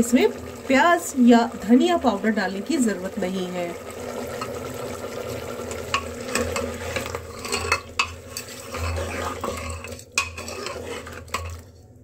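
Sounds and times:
oil sizzling: 0:00.0 - 0:12.0
ladle stirring in a pot: 0:03.8 - 0:12.0
ladle clinking against pot: 0:05.9 - 0:11.6.

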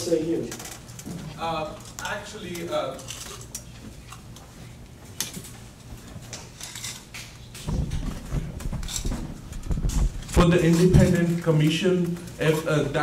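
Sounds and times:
steady low hum: 0:00.0 - 0:13.0
heavy low thumps: 0:07.7 - 0:10.5.

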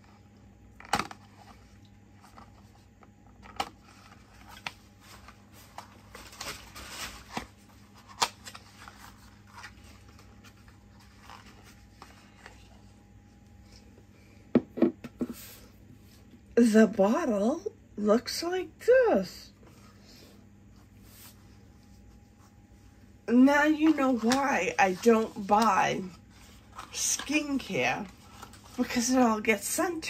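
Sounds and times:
paperboard rustling: 0:03.4 - 0:13.0, 0:23.6 - 0:29.2.

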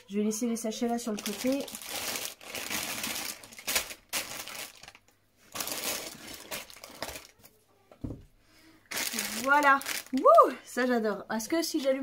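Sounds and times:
plastic pieces rattling in bags: 0:01.0 - 0:07.4, 0:08.9 - 0:10.2.

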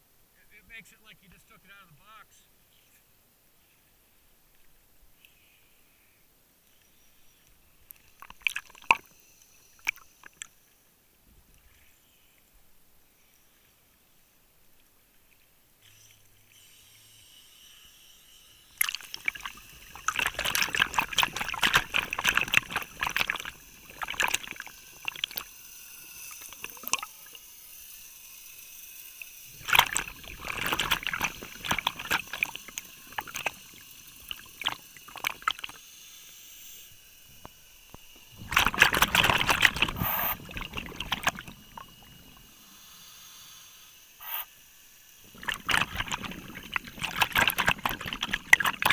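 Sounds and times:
underwater air bubbles crackling: 0:18.8 - 0:27.4, 0:29.6 - 0:35.8, 0:38.4 - 0:42.5, 0:45.3 - 0:48.9.

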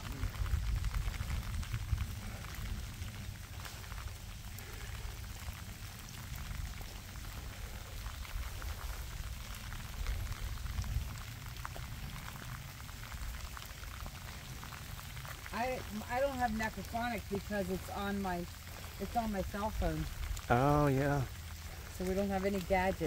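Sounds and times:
low rumble: 0:00.0 - 0:16.2
heavy rain: 0:00.0 - 0:23.0.

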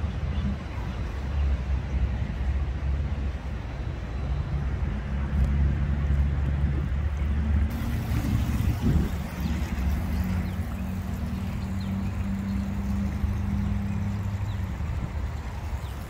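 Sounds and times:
tyre noise on wet road: 0:05.1 - 0:16.0.

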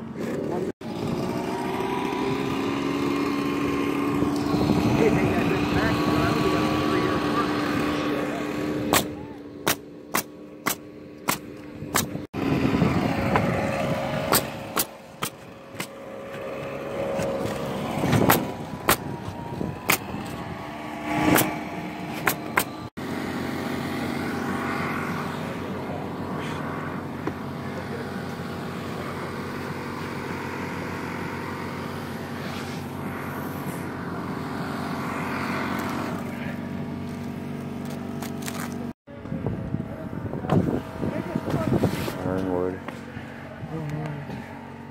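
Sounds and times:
low motor hum: 0:00.0 - 0:44.9
nail gun firing: 0:08.9 - 0:12.2, 0:14.3 - 0:16.0, 0:18.1 - 0:19.1.

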